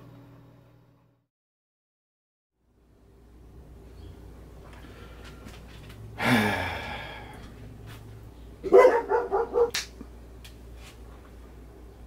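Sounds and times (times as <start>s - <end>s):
dog barking: 8.6s - 9.8s
dog crying: 8.6s - 9.8s.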